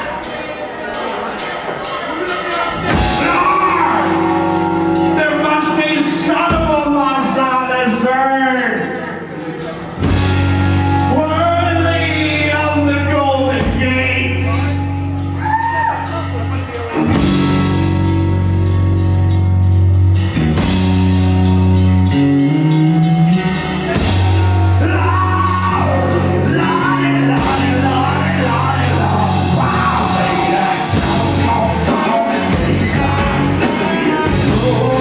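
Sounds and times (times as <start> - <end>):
rock band playing heavy chords: 0.0 - 35.0
person singing: 24.4 - 35.0.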